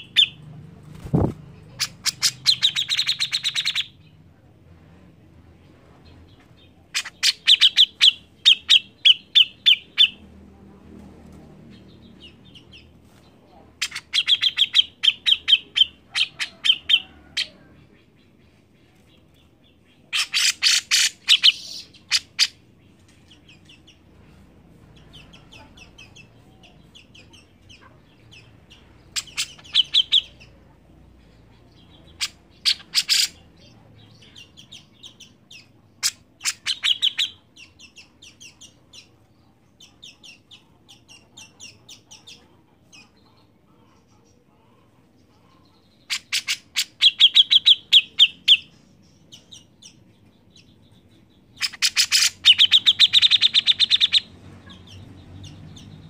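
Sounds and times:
bird chattering calls: 0:01.1 - 0:04.0, 0:06.9 - 0:10.2, 0:20.1 - 0:22.6, 0:25.1 - 0:30.5, 0:31.8 - 0:33.5, 0:34.4 - 0:39.1, 0:45.5 - 0:50.0, 0:51.5 - 0:56.0.

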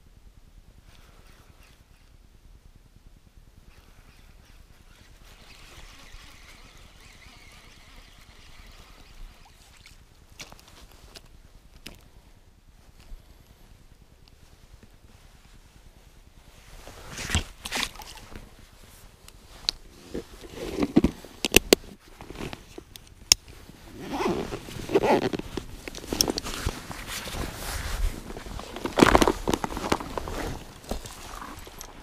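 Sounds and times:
rustling of fabric and plastic: 0:23.5 - 0:32.0.

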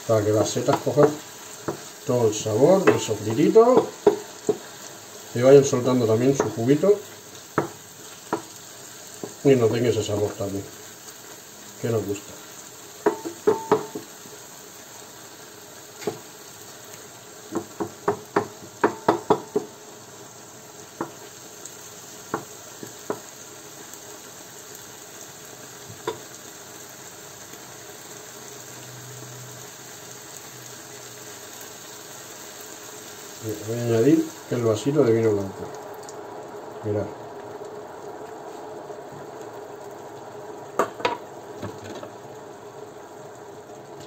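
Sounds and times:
mushrooms frying in pan: 0:00.0 - 0:44.0
wooden spoon knocking on pan: 0:00.7 - 0:01.9, 0:02.8 - 0:04.7, 0:06.3 - 0:06.6, 0:07.5 - 0:08.6, 0:09.2 - 0:09.4, 0:13.0 - 0:14.1, 0:16.0 - 0:16.2, 0:17.5 - 0:19.8, 0:21.0 - 0:21.2, 0:22.3 - 0:23.3, 0:25.9 - 0:26.2, 0:40.8 - 0:42.2.

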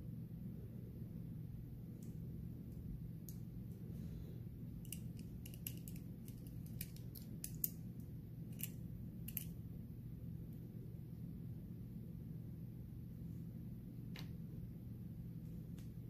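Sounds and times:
small metal clicks of lock pins: 0:04.8 - 0:07.8.

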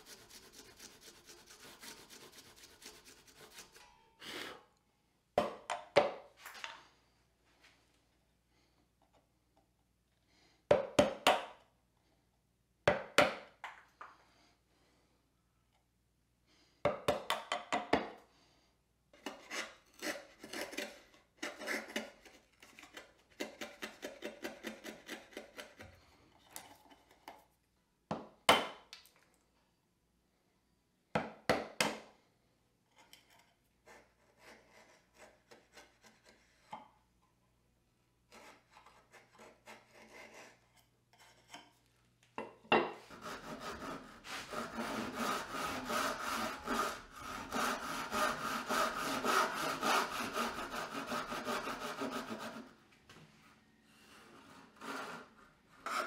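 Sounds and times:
saw cutting wood: 0:00.0 - 0:03.8, 0:43.1 - 0:52.7
hand tools scraping wood: 0:00.0 - 0:04.5, 0:19.2 - 0:27.5, 0:33.0 - 0:36.8, 0:38.3 - 0:41.8, 0:42.9 - 0:52.8, 0:54.0 - 0:56.0.

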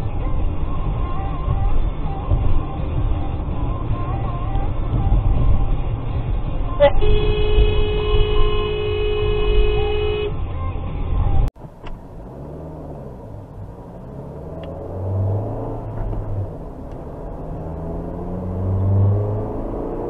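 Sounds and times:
car engine and road noise: 0:00.0 - 0:20.0
car horn long blast: 0:06.8 - 0:10.4.

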